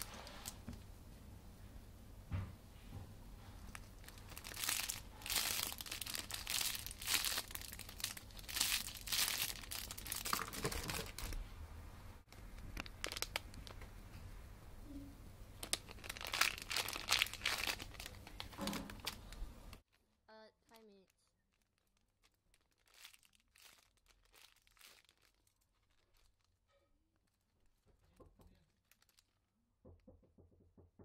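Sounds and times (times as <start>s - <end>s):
plastic packaging crinkling: 0.0s - 0.7s, 3.6s - 11.4s, 12.3s - 13.9s, 15.6s - 29.4s.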